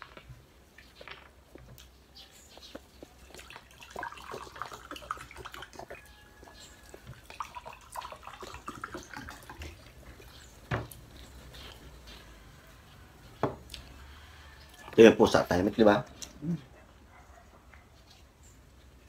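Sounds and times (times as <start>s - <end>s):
liquid pouring into a glass: 3.2s - 10.5s.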